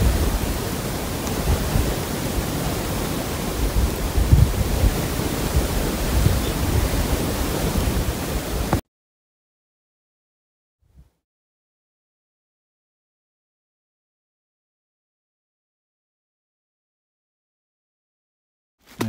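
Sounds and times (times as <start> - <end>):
wind buffeting microphone: 0.0 - 8.8.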